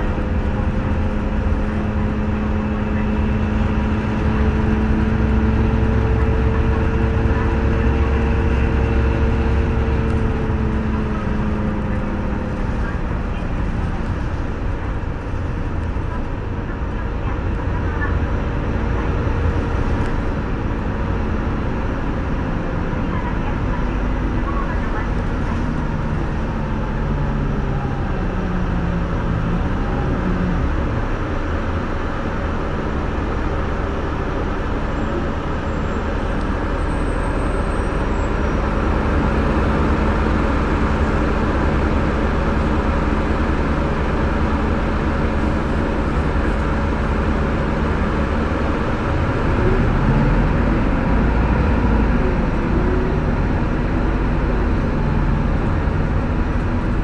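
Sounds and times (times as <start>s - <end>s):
bus engine running: 0.0s - 57.0s
road noise rumble: 0.0s - 57.0s.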